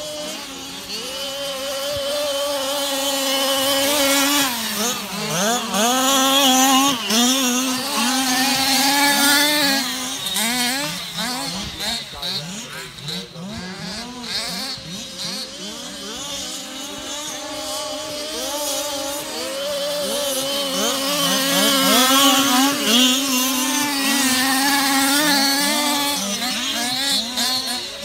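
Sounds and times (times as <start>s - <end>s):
rc car engines revving: 0.0s - 28.0s.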